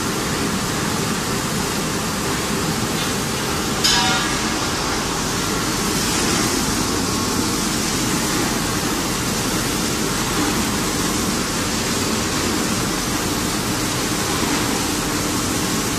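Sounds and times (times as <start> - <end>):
machinery running: 0.0 - 15.9.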